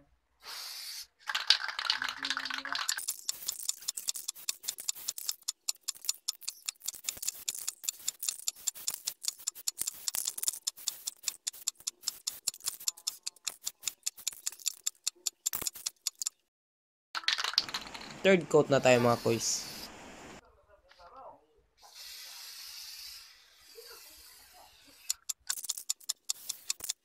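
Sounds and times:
metallic clicking rattle: 0:01.3 - 0:16.4, 0:25.0 - 0:27.0.

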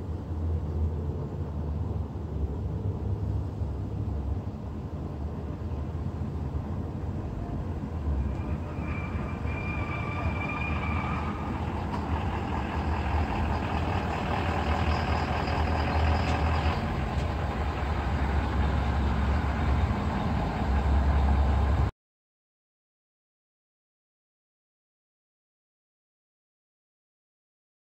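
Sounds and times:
diesel truck engine rumbling: 0:00.0 - 0:21.9.

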